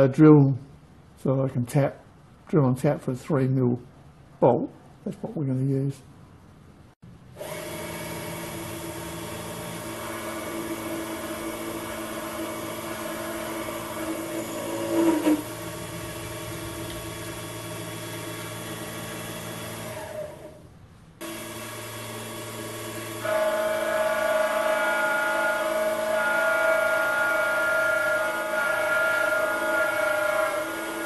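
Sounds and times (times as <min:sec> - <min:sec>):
drilling spindle motor hum and whine: 0:07.4 - 0:20.6, 0:21.2 - 0:31.0.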